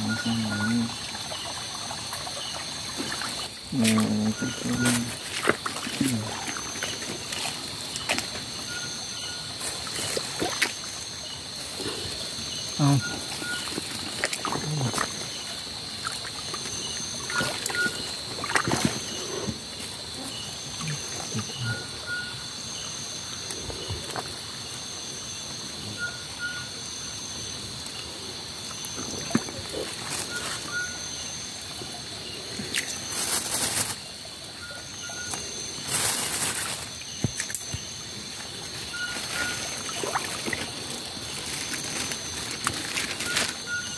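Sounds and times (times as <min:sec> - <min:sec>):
leaves rustling: 0:00.0 - 0:25.6, 0:26.8 - 0:43.9
creek trickling: 0:00.0 - 0:43.9
insects chorus: 0:00.0 - 0:43.9
short repeating insect call: 0:00.0 - 0:43.9
hand net splashing in water: 0:16.0 - 0:19.2.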